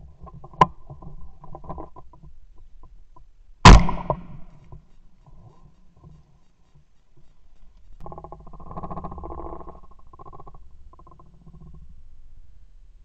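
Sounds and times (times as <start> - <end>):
shotgun shot: 3.7 - 4.5.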